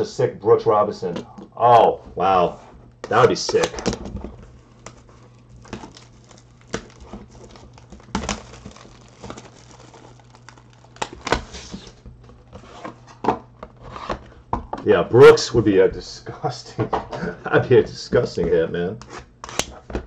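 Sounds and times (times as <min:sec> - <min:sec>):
plastic wrapper crinkling: 0:03.1 - 0:13.0.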